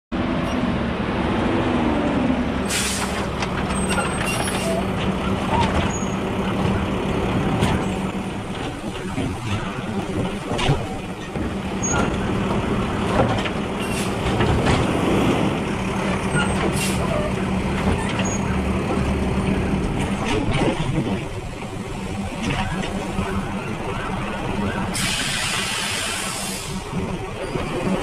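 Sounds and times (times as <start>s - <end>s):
diesel engine and hydraulics humming: 0.2s - 28.0s.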